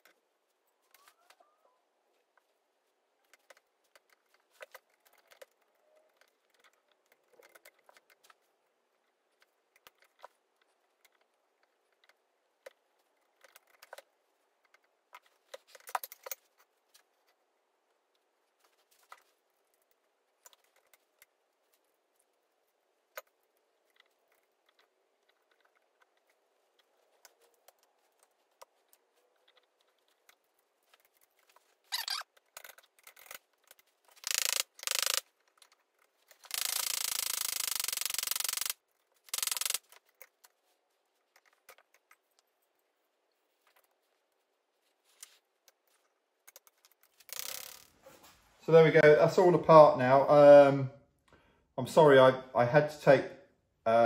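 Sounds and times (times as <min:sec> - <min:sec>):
metallic clicks of hand tools: 0:32.0 - 0:35.8, 0:36.4 - 0:40.3.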